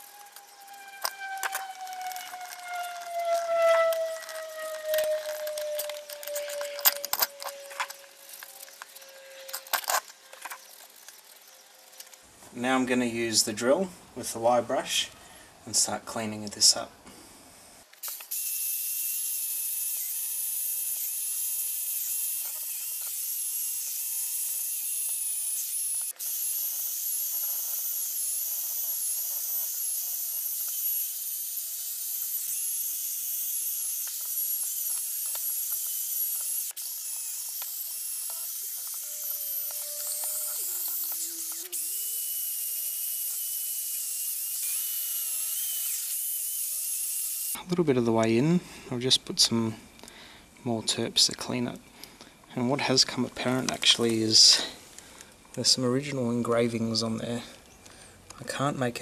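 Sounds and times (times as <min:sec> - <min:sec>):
drill wire brush scrubbing metal: 0:18.0 - 0:47.6.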